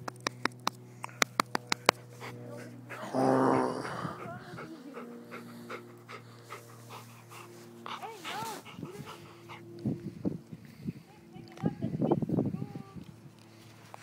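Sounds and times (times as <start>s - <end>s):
dog panting: 1.2s - 10.4s.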